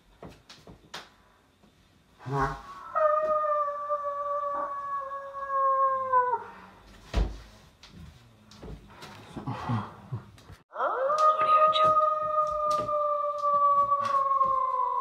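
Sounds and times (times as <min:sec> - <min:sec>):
person howling like a wolf: 0:02.8 - 0:06.6, 0:10.7 - 0:15.0
thump: 0:07.1 - 0:07.4.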